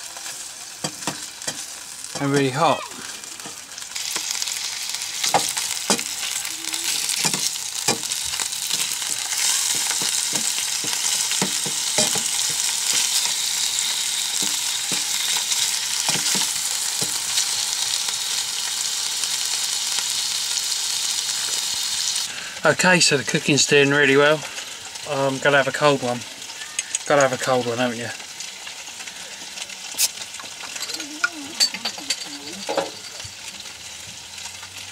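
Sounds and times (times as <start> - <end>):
meatballs sizzling in a frying pan: 0.0 - 34.9
wooden spoon knocking and scraping pan: 7.2 - 13.3, 16.1 - 17.2.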